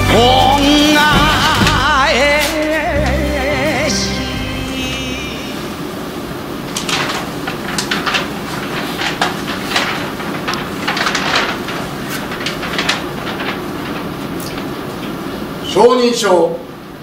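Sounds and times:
stiff paper rustling: 0.0s - 3.1s, 6.6s - 15.6s.

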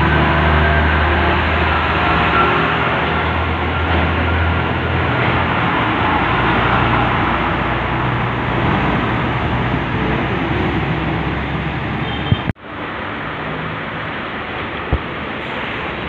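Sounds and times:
diesel truck engine passing: 0.0s - 16.0s
road noise: 0.0s - 16.0s
tyres hissing on wet road: 12.7s - 16.0s.

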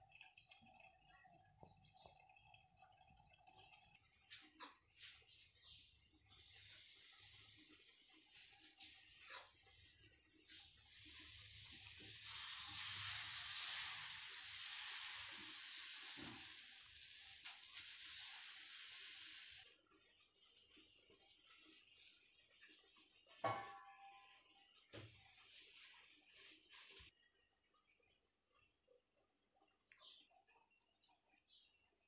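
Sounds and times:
batter sizzling on a hot pan: 4.0s - 19.7s.

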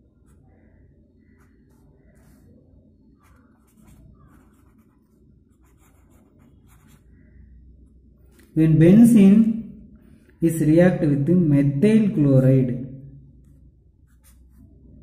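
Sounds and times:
marker scratching on paper: 1.3s - 7.3s, 13.4s - 14.8s.

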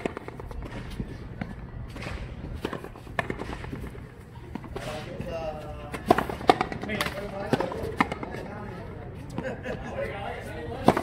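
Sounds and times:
ball smacking concrete wall: 0.0s - 8.4s
ball cracking off racket strings: 1.9s - 5.0s.

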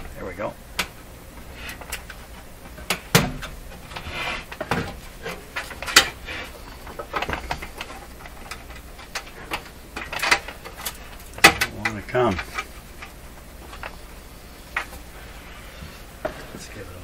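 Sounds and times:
knocks and clunks of metal chassis: 0.8s - 6.2s, 6.8s - 14.0s
short scrape: 4.0s - 4.5s.

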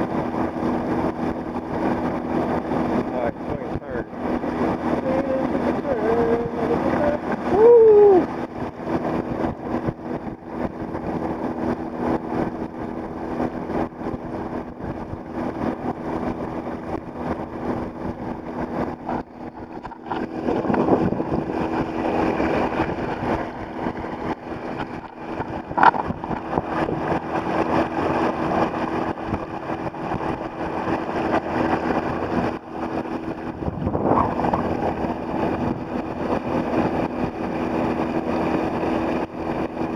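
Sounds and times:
boat motor humming: 0.0s - 39.9s
water rushing along hull: 0.0s - 39.9s.

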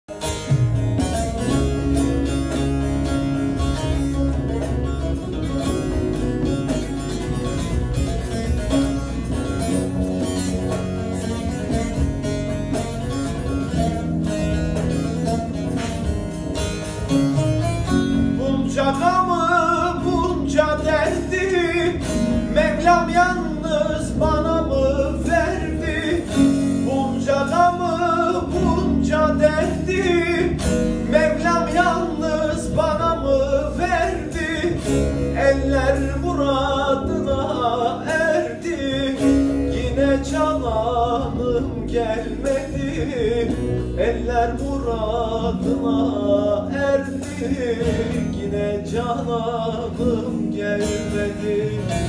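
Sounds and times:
plucked long-necked lute: 0.1s - 52.0s
electronic keyboard low notes: 0.2s - 52.0s
man singing folk song: 17.8s - 52.0s.

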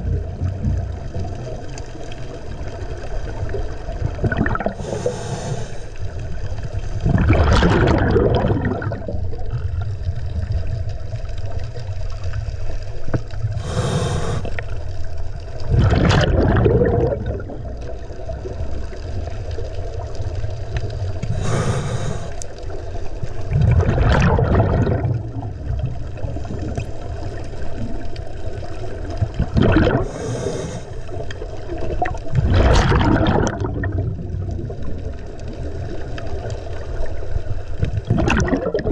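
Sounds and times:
exhaled bubbles gurgling: 0.0s - 38.9s
regulator inhale hiss: 4.7s - 6.2s, 13.5s - 14.8s, 21.2s - 22.7s, 30.0s - 31.4s.

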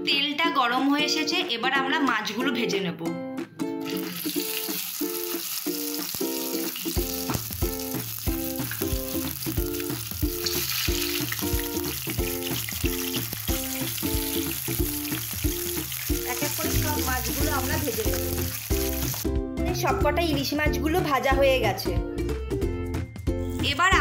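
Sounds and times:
background music: 0.0s - 24.0s
fish sizzling in oil: 3.8s - 19.3s
bass line: 16.2s - 22.9s.

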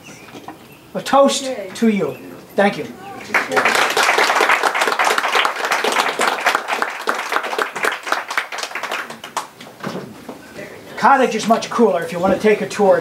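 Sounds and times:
audience applauding: 3.0s - 9.6s.

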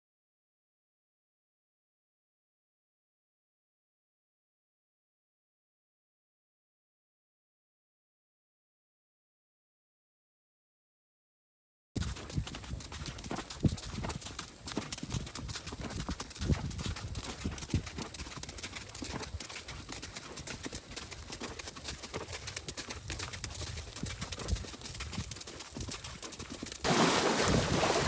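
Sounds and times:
horse hooves on dirt road: 12.0s - 28.0s.

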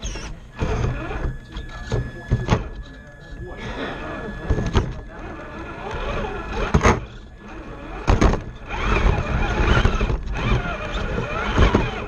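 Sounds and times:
toy truck motor whining: 0.0s - 12.0s
chassis knocking over obstacles: 7.8s - 12.0s.

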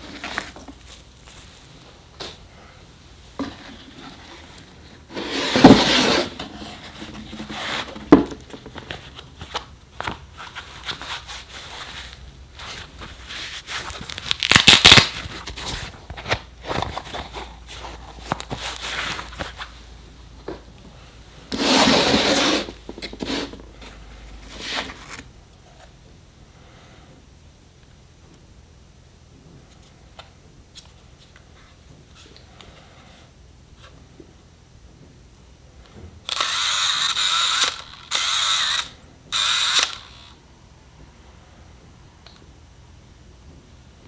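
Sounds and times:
packaging rubbing and scraping: 0.0s - 1.8s, 3.6s - 9.7s, 10.3s - 19.7s, 21.5s - 25.3s
packaging rustling scrapes: 0.0s - 1.9s, 3.5s - 9.7s, 10.3s - 19.7s, 21.5s - 25.3s.

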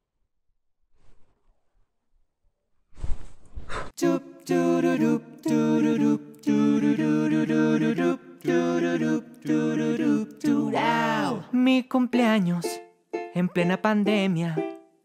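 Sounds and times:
a cappella group singing: 4.0s - 11.5s.

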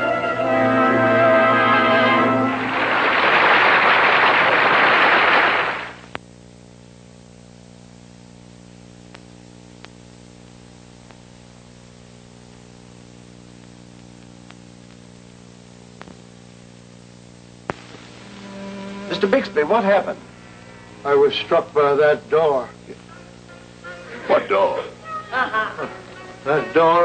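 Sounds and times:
steady electrical hum: 0.0s - 27.0s
burst of hiss and static: 2.5s - 6.1s, 17.0s - 21.8s
sharp clicks and pops: 16.0s - 16.2s, 17.6s - 18.1s.

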